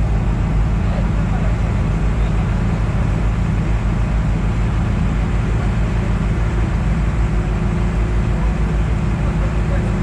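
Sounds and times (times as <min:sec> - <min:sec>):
boat engine low rumble: 0:00.0 - 0:10.0.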